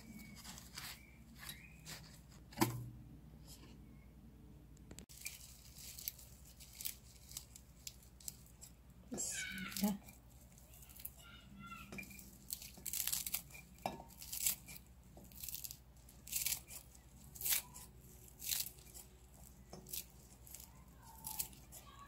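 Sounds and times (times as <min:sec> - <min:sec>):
scissors snipping leaves: 0:14.2 - 0:22.0.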